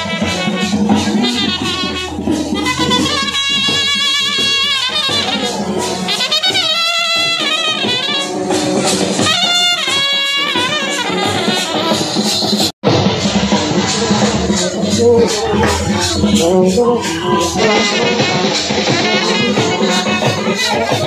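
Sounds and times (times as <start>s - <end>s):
brass horns melody: 0.0s - 21.0s
drumming: 0.0s - 21.0s.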